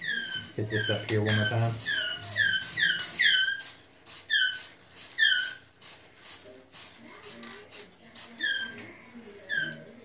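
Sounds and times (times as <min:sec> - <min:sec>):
aerosol spray can hissing: 0:01.4 - 0:08.6.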